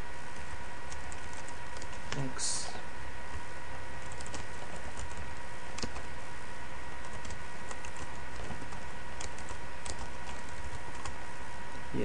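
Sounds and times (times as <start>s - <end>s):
background hiss and hum: 0.0s - 12.0s
computer keyboard keys clicking: 0.9s - 2.2s, 4.0s - 6.1s, 7.0s - 11.2s.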